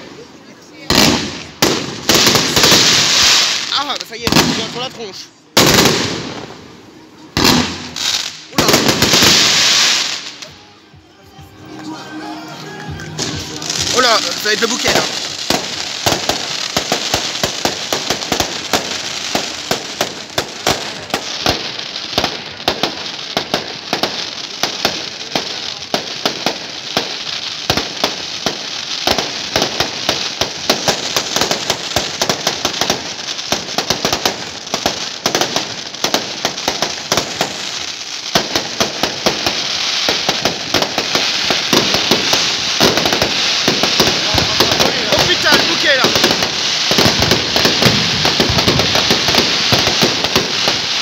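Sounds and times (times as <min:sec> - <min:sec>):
fireworks crackling: 0:00.0 - 0:51.0
fireworks shells bursting: 0:26.2 - 0:51.0.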